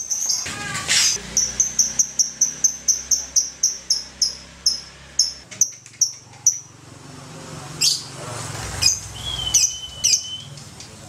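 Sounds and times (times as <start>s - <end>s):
lovebird chirping: 0.0s - 6.7s, 8.8s - 10.8s.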